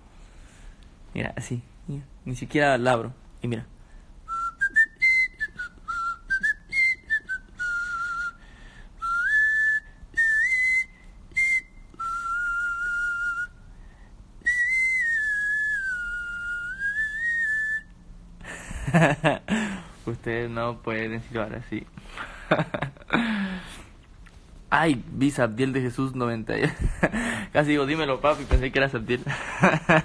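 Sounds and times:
man whistling: 0:04.3 - 0:13.6, 0:14.4 - 0:18.0.

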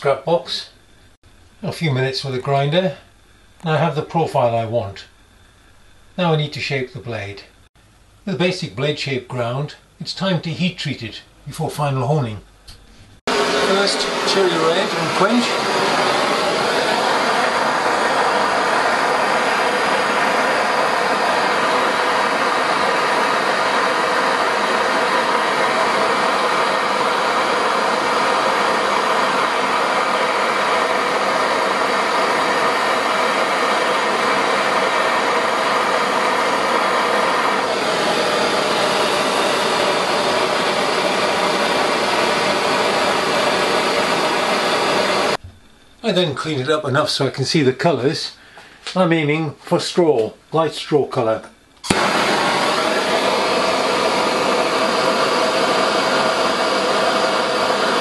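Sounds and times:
gas torch flame hissing: 0:12.7 - 0:45.4, 0:51.8 - 0:58.0.

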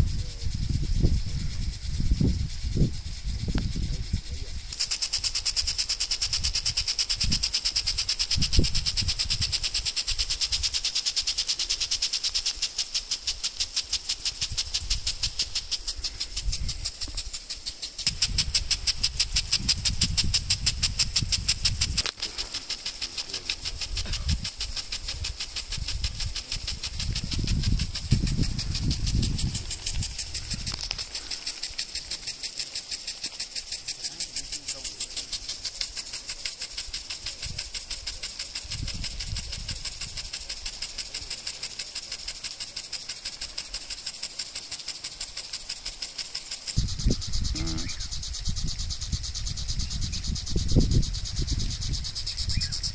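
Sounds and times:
low wind noise: 0:00.0 - 0:10.8, 0:14.3 - 0:31.3, 0:36.8 - 0:40.7, 0:46.8 - 0:52.9
water spray hissing: 0:00.0 - 0:52.9
impact sprinkler arms ticking: 0:00.2 - 0:52.9.

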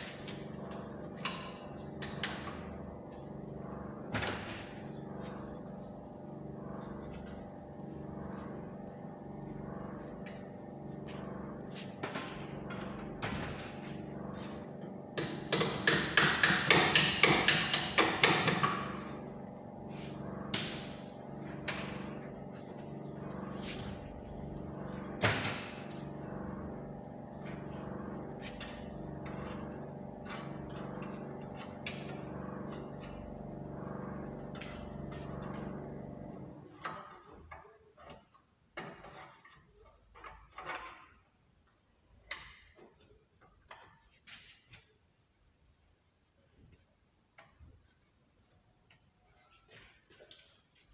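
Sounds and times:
steady machine hum: 0:00.0 - 0:36.9
loud clicking of hand tools: 0:15.2 - 0:18.8.

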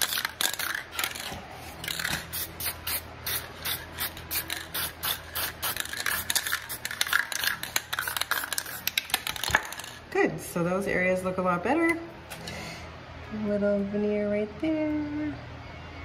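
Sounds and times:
aerosol can spritzes: 0:02.0 - 0:09.8.

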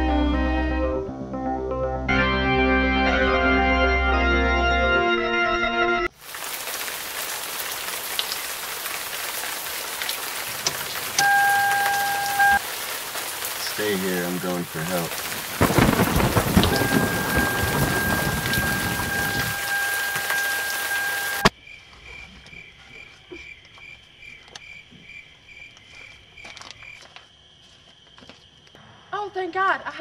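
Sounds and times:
heavy rain: 0:06.1 - 0:21.5
thunder rumbling: 0:10.2 - 0:21.5.

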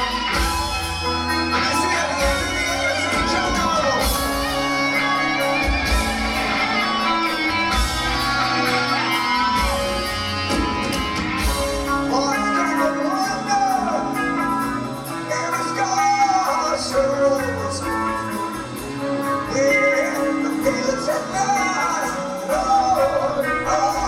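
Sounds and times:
bass guitar: 0:00.0 - 0:24.0
distorted electric guitars: 0:00.0 - 0:24.0
drums: 0:00.0 - 0:24.0.

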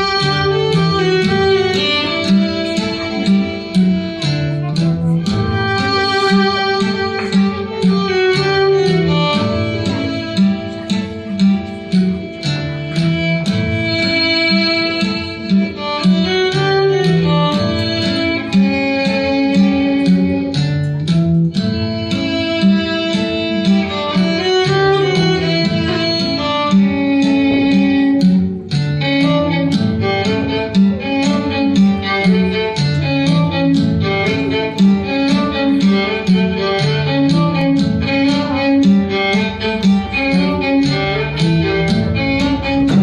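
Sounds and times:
fiddle melody: 0:00.0 - 0:43.0
plucked string accompaniment: 0:00.0 - 0:43.0
repeating bass line: 0:35.8 - 0:43.0.

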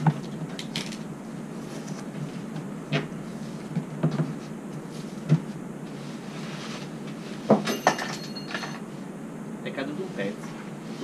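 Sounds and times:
thumps and rustling: 0:01.8 - 0:05.6.

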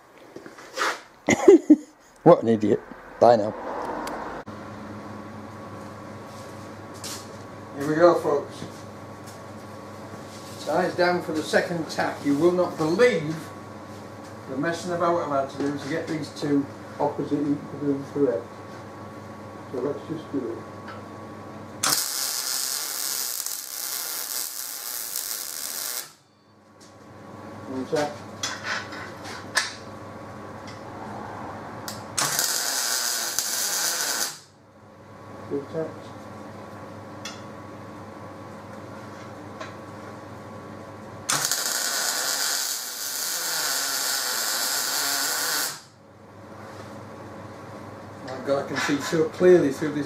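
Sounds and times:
welding arc hissing: 0:21.8 - 0:26.2, 0:31.9 - 0:34.5, 0:41.3 - 0:45.9.

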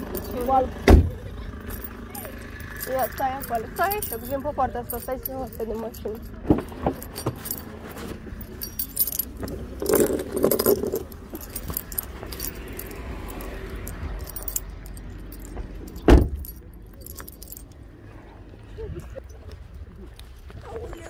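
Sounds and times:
car door shutting: 0:00.8 - 0:01.2, 0:16.0 - 0:16.4.

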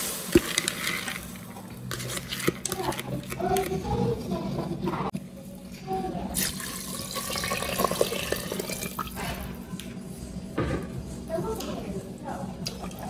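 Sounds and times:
water pouring into metal pot: 0:06.4 - 0:09.1.

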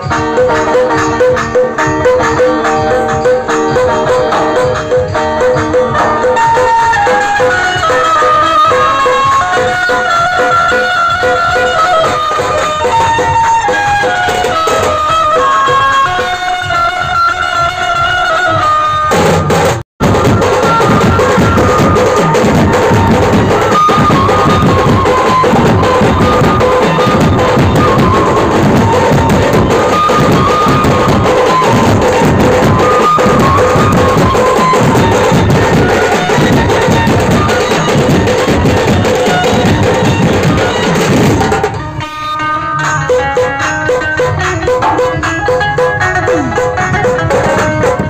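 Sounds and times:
big drums beaten with sticks: 0:19.1 - 0:41.9, 0:43.9 - 0:48.0.

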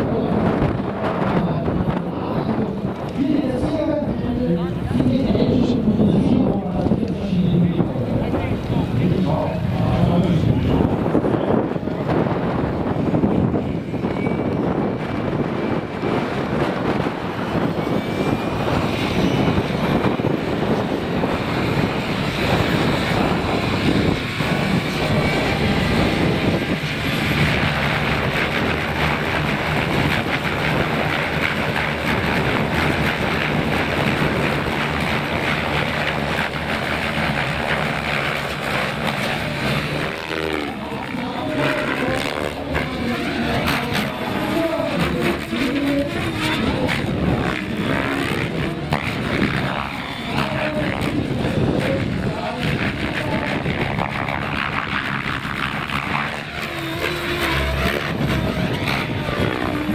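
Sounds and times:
electric motors whining: 0:00.0 - 0:59.9
helicopter rotor blades whooshing: 0:00.0 - 0:59.9.

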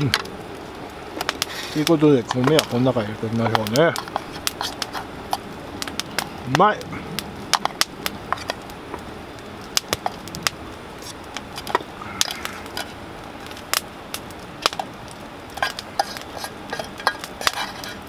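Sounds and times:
steady low hiss: 0:00.0 - 0:18.0
spatula scraping metal tin: 0:03.9 - 0:05.4, 0:15.6 - 0:18.0.

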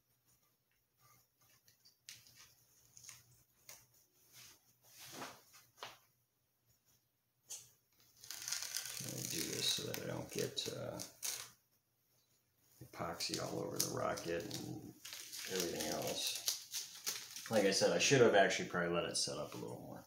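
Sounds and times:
masking tape peeling: 0:08.2 - 0:11.6, 0:13.0 - 0:17.6.

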